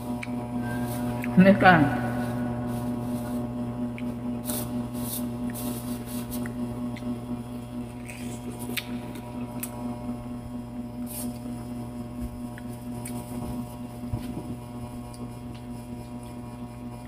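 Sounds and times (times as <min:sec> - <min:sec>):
electrical mains hum: 0:00.0 - 0:17.0
person chewing: 0:07.8 - 0:09.8.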